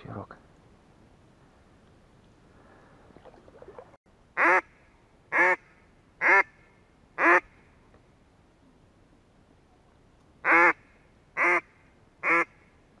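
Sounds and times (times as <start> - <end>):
duck call quacks: 5.3 - 6.6, 7.2 - 7.5, 10.4 - 10.8, 11.4 - 12.6.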